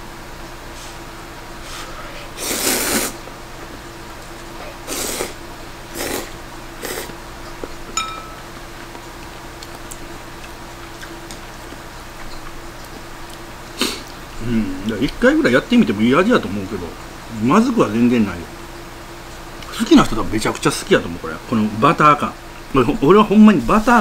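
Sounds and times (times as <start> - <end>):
noodles being slurped: 2.4 - 3.2, 4.8 - 7.2
chopsticks clinking on bowl: 8.0 - 8.6.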